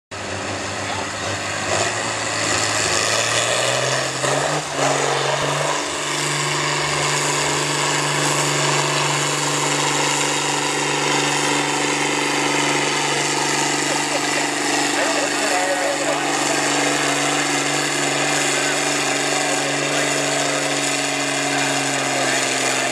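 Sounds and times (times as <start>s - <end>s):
tractor diesel engine at full throttle: 0.1s - 22.9s.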